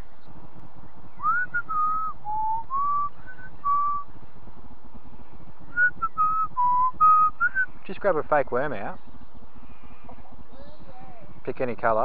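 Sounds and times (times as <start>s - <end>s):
person whistling a tune: 1.2s - 4.0s, 5.7s - 7.7s.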